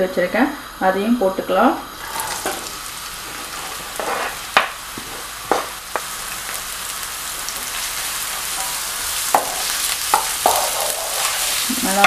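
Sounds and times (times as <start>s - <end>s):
onions sizzling in oil: 0.0s - 12.0s
utensils knocking against pan: 4.0s - 6.1s, 9.3s - 12.0s.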